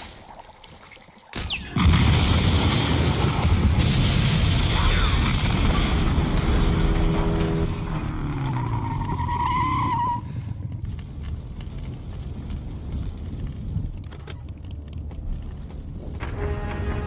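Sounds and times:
engine and fire rumble: 1.8s - 17.0s
motorcycle tyre squealing: 8.3s - 10.3s.

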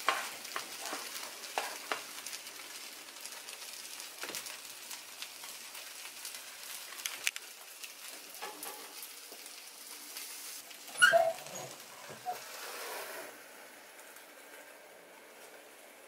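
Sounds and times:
waffle iron hiss: 0.0s - 16.0s
loud squeak: 10.9s - 12.9s.

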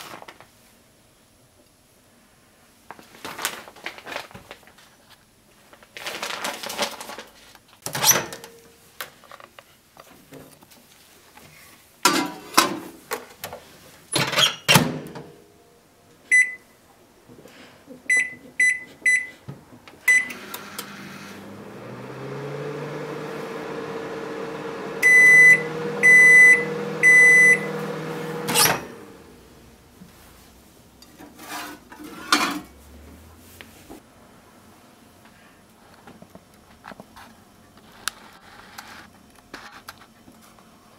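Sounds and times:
microwave humming: 20.0s - 29.8s
loud beeps: 25.0s - 27.7s.

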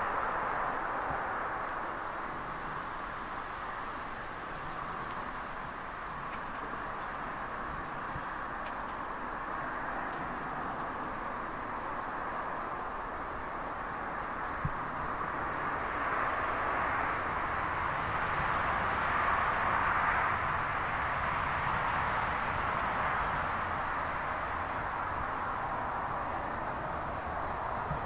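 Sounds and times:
diesel train approaching: 0.0s - 28.0s
thin high steady tone: 20.4s - 28.0s.

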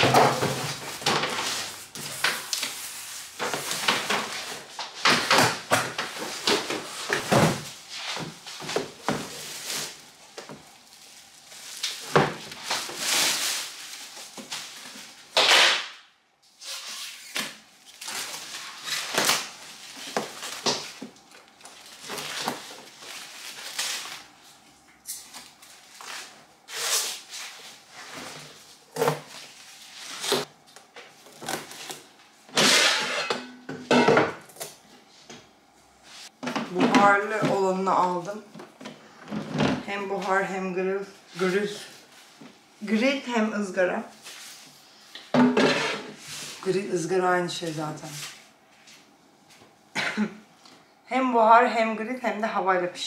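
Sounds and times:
plastic wrapping rustling: 5.9s - 15.4s, 16.5s - 32.4s.

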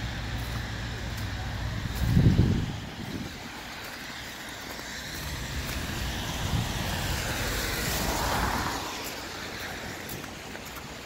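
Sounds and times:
car tyres hissing on wet road: 0.0s - 11.0s.

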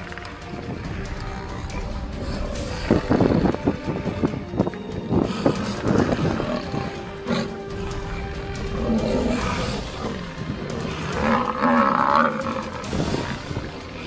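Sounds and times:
background music: 0.0s - 14.0s
lions growling and snarling: 0.0s - 14.0s.

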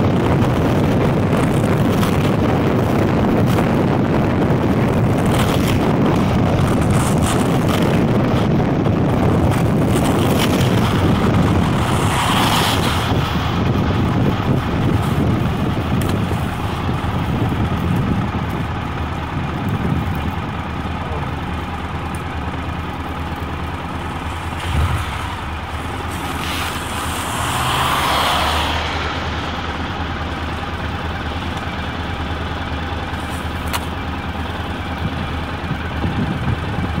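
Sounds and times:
car tyres hissing on wet road: 9.8s - 14.1s, 23.9s - 30.5s
motorcycle engine idling: 14.0s - 24.5s, 29.7s - 37.0s.

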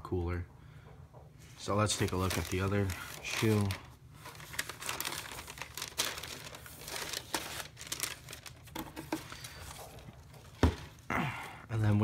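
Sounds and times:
tissue paper crinkling and rustling: 1.5s - 11.1s.

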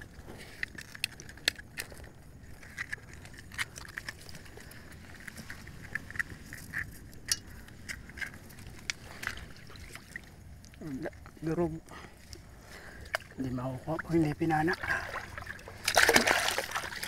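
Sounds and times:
low steady background noise: 0.0s - 17.0s.

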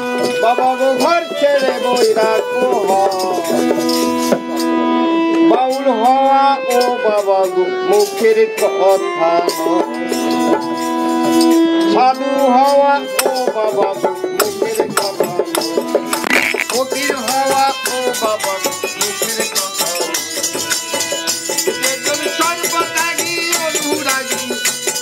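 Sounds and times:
rattling percussion: 16.2s - 17.1s.

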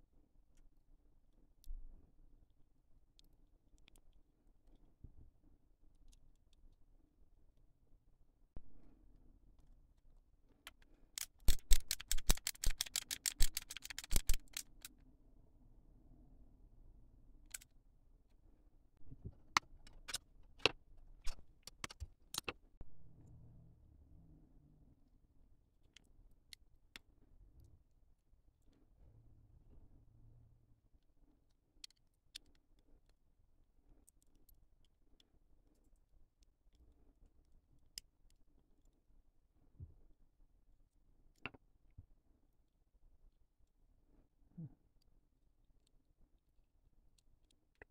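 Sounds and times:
plastic parts clicking and snapping: 10.6s - 14.9s, 17.5s - 17.7s, 19.5s - 22.6s.

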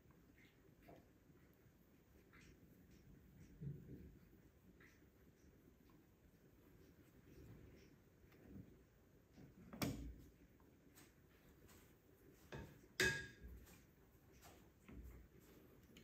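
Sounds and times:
dishes and utensils clattering: 12.6s - 13.6s.

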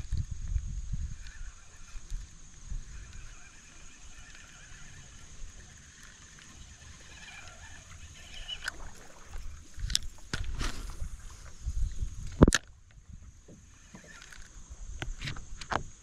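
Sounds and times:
high-pitched hum: 0.0s - 15.2s
faint animal calls: 2.8s - 9.0s.

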